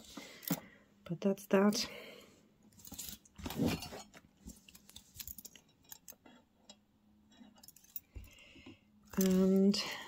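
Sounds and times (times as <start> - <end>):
soft handling noise: 2.6 - 9.9
metal necklace links clinking: 5.0 - 6.8, 7.4 - 8.3.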